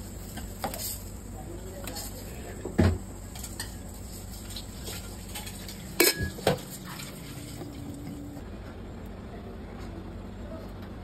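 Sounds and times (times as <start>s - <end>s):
metal kitchenware clattering: 4.8s - 7.5s.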